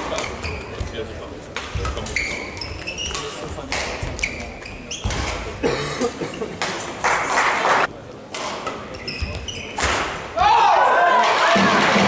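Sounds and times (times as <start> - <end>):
shoes squeaking on court floor: 0.0 - 5.6, 8.4 - 9.9.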